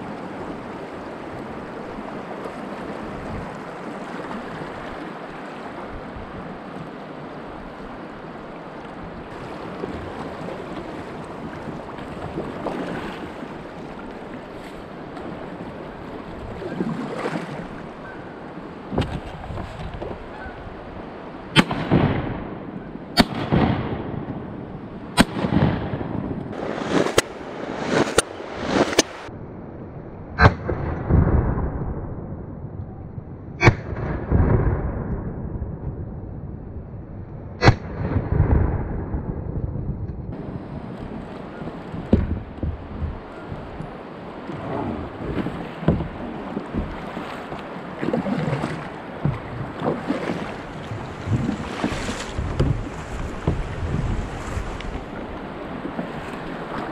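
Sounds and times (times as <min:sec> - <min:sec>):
wind on microphone: 0:00.0 - 0:05.0, 0:18.8 - 0:56.9
paddle strokes splashing: 0:00.0 - 0:22.2, 0:26.5 - 0:29.3, 0:40.7 - 0:56.9
water rushing past hull: 0:00.0 - 0:29.3, 0:40.3 - 0:56.9.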